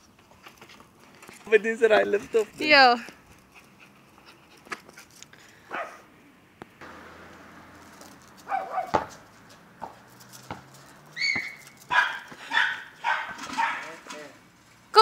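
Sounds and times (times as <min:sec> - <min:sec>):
dog barking: 0:05.7 - 0:06.0, 0:08.5 - 0:09.1, 0:11.9 - 0:13.9.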